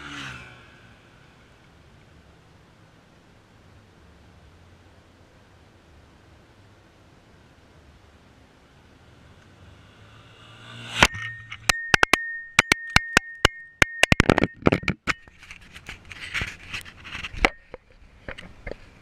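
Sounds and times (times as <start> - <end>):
steady high tone: 9.8 - 15.0
sharp clicks and knocks: 10.9 - 18.9
camera handling scraping: 14.2 - 18.8.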